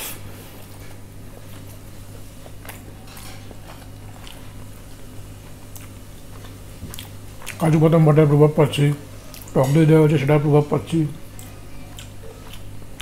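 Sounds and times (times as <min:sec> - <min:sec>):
steady low hum: 0:00.0 - 0:13.0
person chewing food: 0:00.8 - 0:07.7, 0:09.1 - 0:09.8, 0:11.2 - 0:13.0.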